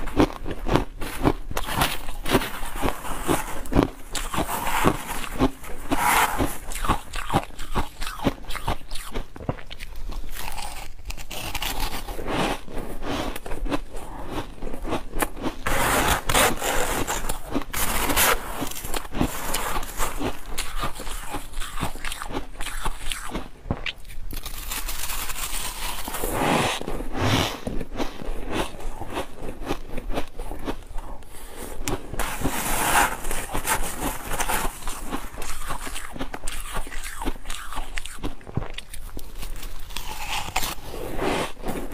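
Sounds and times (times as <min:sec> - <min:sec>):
crunchy chewing: 0:00.0 - 0:41.9
metal spoon scraping frost: 0:01.1 - 0:08.9, 0:15.3 - 0:23.1, 0:24.4 - 0:27.7, 0:31.4 - 0:38.3, 0:39.4 - 0:41.9.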